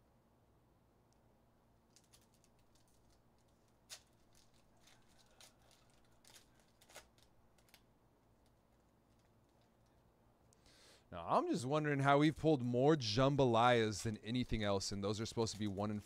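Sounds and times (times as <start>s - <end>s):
foil wrapper crinkling and tearing: 1.9s - 9.7s.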